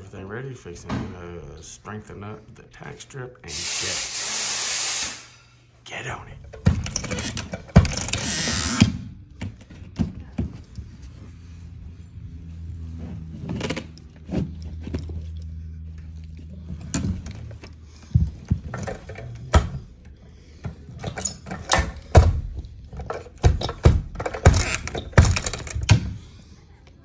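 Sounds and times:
carpet stretcher knocks and clacks: 0:06.5 - 0:08.2, 0:21.5 - 0:26.2.

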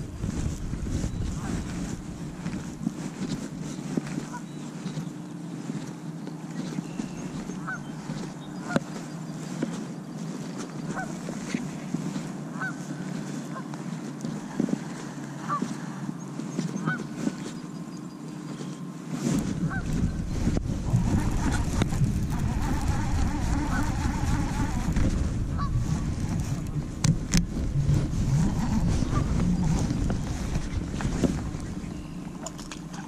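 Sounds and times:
geese honking: 0:07.0 - 0:09.1, 0:10.8 - 0:11.6, 0:12.5 - 0:13.8, 0:16.8 - 0:17.2, 0:19.6 - 0:26.7, 0:28.3 - 0:30.6.

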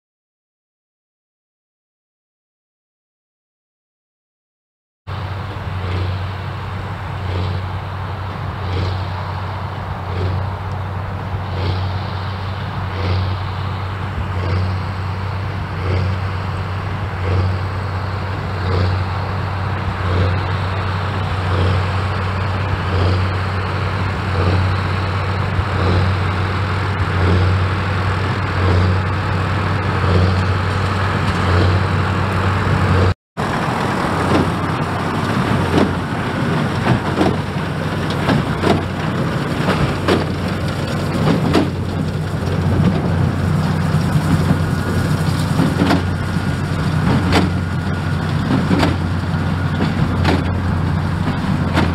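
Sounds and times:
tractor engine under load: 0:05.1 - 0:51.9
baler knocks and clatter: 0:33.0 - 0:51.9.

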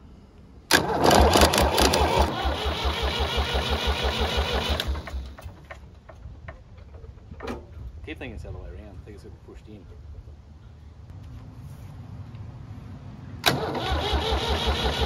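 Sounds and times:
starter motor cranking diesel engine: 0:00.7 - 0:05.6, 0:13.4 - 0:15.0.

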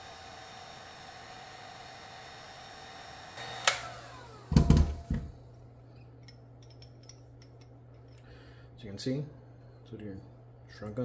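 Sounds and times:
heat gun blowing: 0:00.0 - 0:05.3
fan winding down whine: 0:00.0 - 0:05.4
heat gun thudding on mat: 0:04.5 - 0:05.4.

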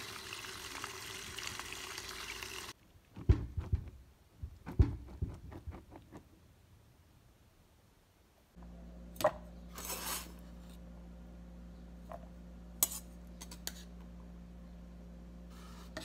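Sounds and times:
low steady hum: 0:06.6 - 0:16.0.

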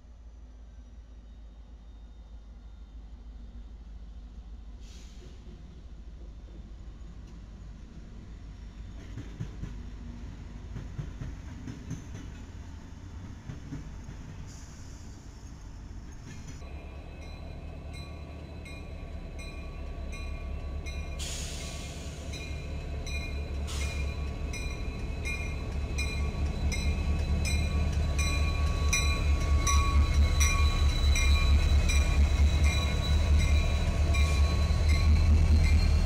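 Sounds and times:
locomotive engine rumble: 0:16.0 - 0:36.0.

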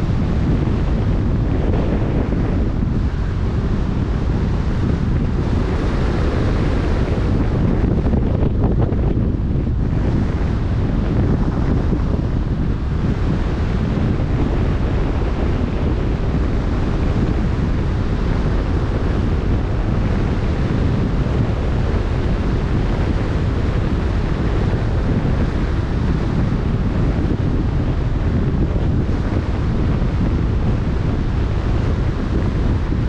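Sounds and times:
choppy sea: 0:00.0 - 0:33.0
wind buffeting microphone: 0:00.0 - 0:33.0.

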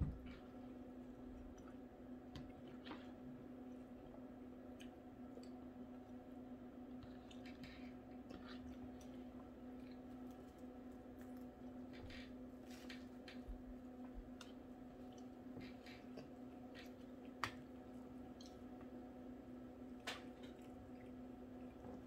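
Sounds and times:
steady low hum: 0:00.0 - 0:22.0
person chewing: 0:01.2 - 0:06.2, 0:06.9 - 0:11.8, 0:14.2 - 0:19.0.

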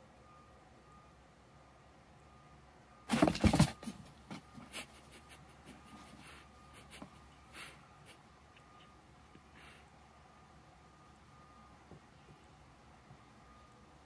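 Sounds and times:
cat scratching cardboard box: 0:03.1 - 0:07.3.

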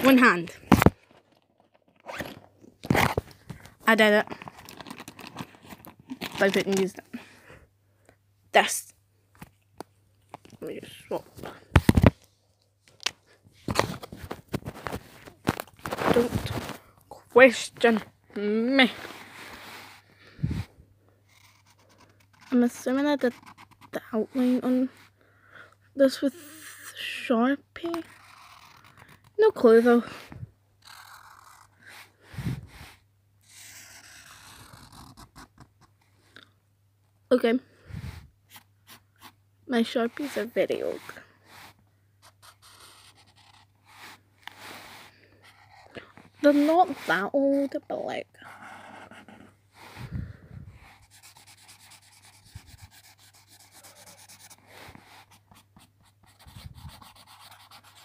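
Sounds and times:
marker scribbling on paper: 0:21.3 - 0:24.6, 0:46.4 - 0:47.3, 0:50.8 - 0:58.0
marker scratching on paper: 0:21.3 - 0:24.7, 0:30.8 - 0:32.0, 0:32.7 - 0:35.6, 0:38.5 - 0:47.9, 0:48.5 - 0:49.5, 0:50.8 - 0:58.0.

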